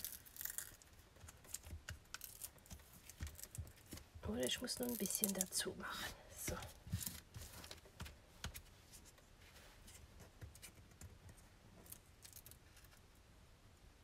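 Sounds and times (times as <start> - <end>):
hands handling cardstock: 0.0 - 5.6.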